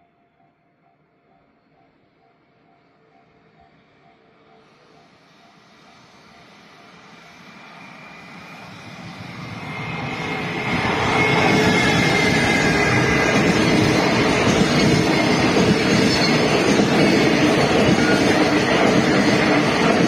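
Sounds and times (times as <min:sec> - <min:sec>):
faint high whine: 0:00.0 - 0:20.0
freight train rumble: 0:04.5 - 0:20.0
wheels clattering on rails: 0:09.7 - 0:20.0.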